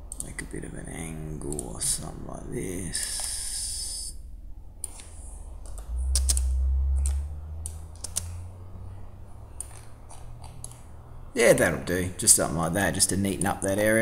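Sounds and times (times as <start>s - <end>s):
low rumble: 0.0s - 11.3s
keyboard and mouse clicks: 0.1s - 0.4s, 1.4s - 1.8s, 4.8s - 8.3s, 9.6s - 10.9s.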